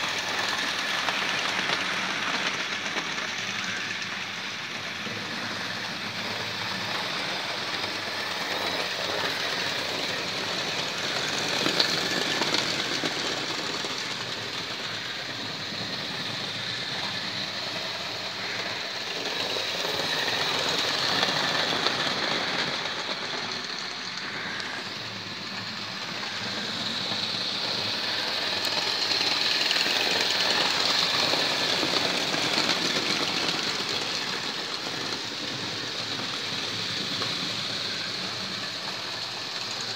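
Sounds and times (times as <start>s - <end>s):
model trains whirring and rattling: 0.0s - 39.9s.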